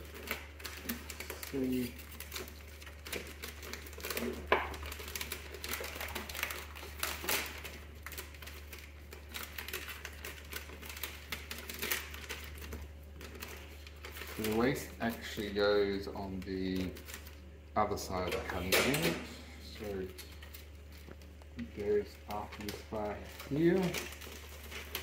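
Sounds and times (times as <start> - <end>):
low steady hum: 0.0 - 25.0
sticky paper crackling while peeled: 0.0 - 25.0.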